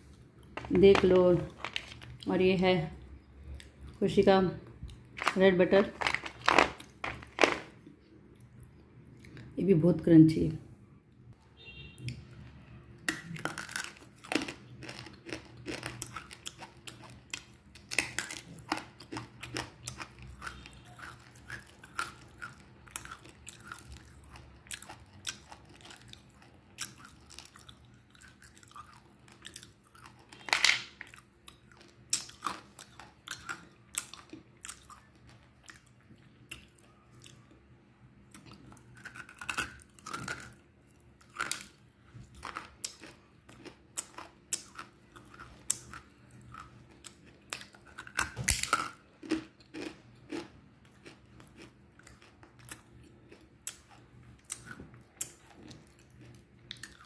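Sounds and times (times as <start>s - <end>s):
crunchy chewing: 13.1s - 37.6s, 38.3s - 57.0s.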